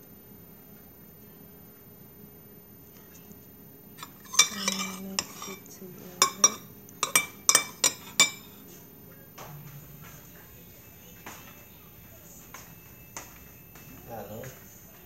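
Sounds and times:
spoon clinking on ceramic bowl: 4.0 - 8.6
spoon scraping a bowl: 4.0 - 8.6.

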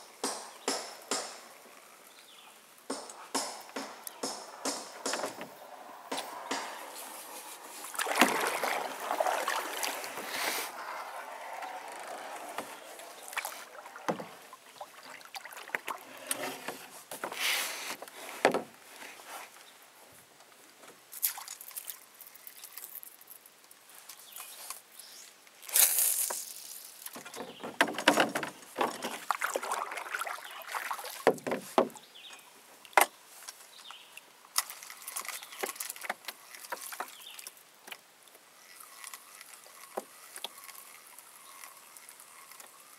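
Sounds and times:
sharp knocks: 0.2 - 1.5, 2.9 - 7.0
water lapping against boat hull: 6.2 - 17.4, 27.2 - 32.1.

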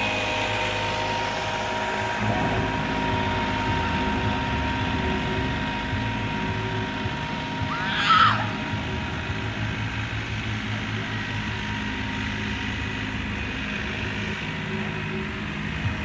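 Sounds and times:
tractor diesel engine running: 0.0 - 16.0
loud high-pitched cry: 7.7 - 8.6.

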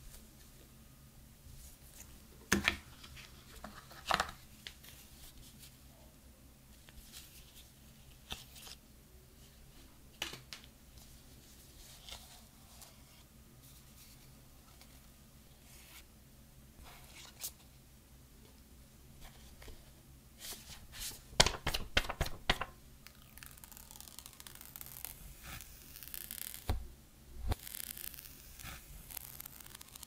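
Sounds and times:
faint steady low hum: 0.0 - 30.0
paper rustling and taps: 21.4 - 22.8.

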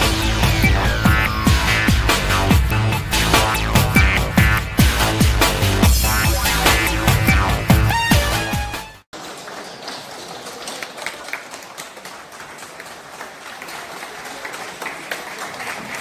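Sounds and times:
electronic intro music: 0.0 - 9.0
crowd applause: 9.1 - 16.0.

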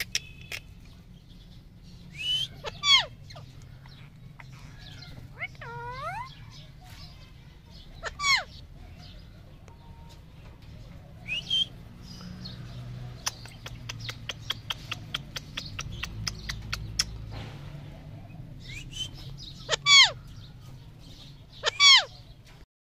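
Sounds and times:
parakeets screeching: 0.0 - 9.3, 11.2 - 22.4
quick sharp clicks: 13.2 - 17.3.

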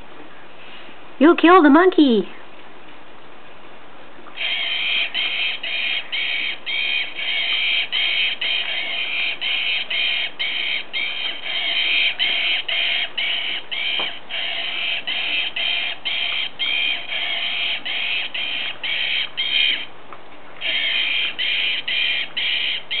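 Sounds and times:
toy squeaker squeaking: 4.4 - 19.9, 20.6 - 23.0.

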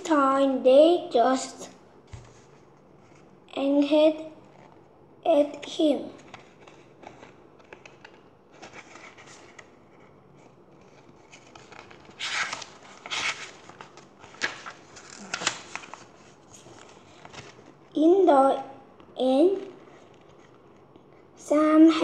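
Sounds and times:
book pages turning: 2.1 - 3.3, 4.4 - 4.9, 6.2 - 17.9, 19.0 - 21.2.

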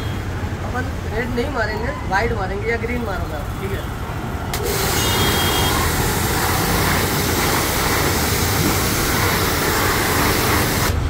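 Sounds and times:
pressure washer jet hissing: 4.5 - 11.0.

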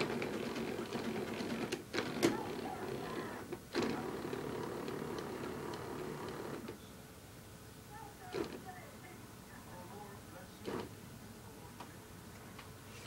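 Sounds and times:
hospital bed motor running: 0.0 - 6.9, 8.1 - 8.8, 10.5 - 11.0.

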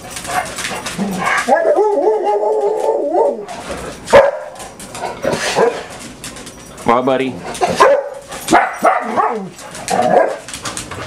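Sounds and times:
dog whining: 0.9 - 4.2, 8.7 - 10.5
dog barking: 4.1 - 4.6, 7.6 - 10.4.

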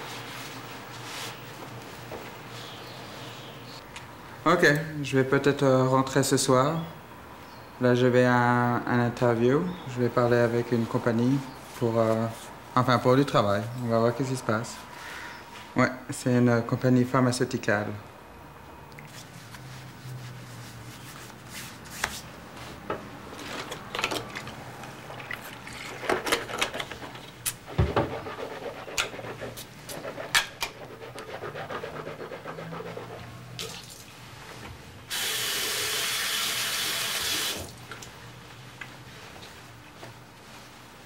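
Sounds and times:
clothing rustling: 38.1 - 41.0.

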